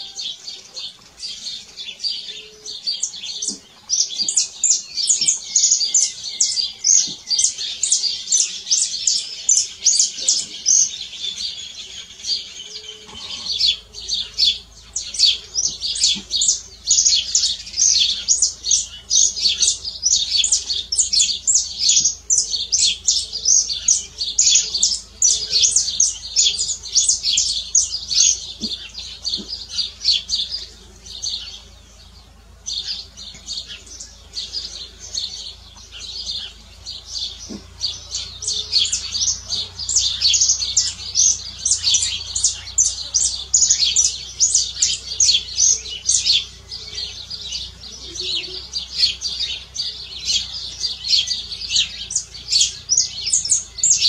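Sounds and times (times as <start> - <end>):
finch singing rapid chirps: 0.0 - 54.0.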